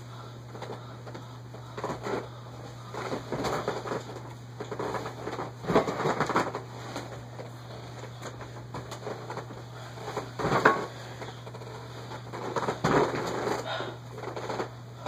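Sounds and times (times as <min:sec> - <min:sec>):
low electrical hum: 0:00.0 - 0:15.0
rustling and clicking of handling: 0:00.4 - 0:15.0.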